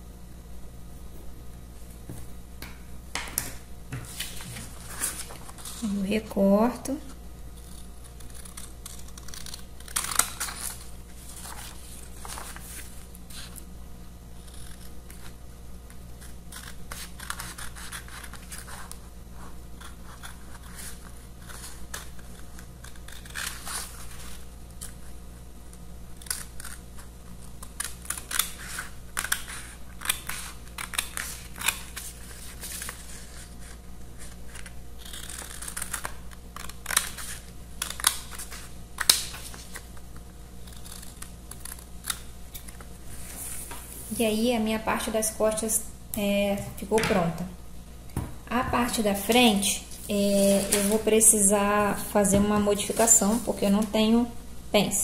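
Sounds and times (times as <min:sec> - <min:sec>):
scissors snipping paper: 0:07.6 - 0:13.6, 0:16.1 - 0:19.0, 0:19.8 - 0:24.2, 0:26.2 - 0:39.8.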